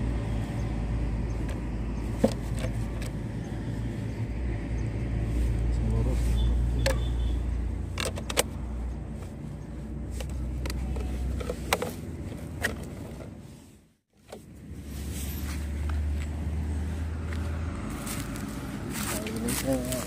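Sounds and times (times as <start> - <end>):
camera handling clicks and knocks: 8.0 - 8.6, 10.2 - 12.0.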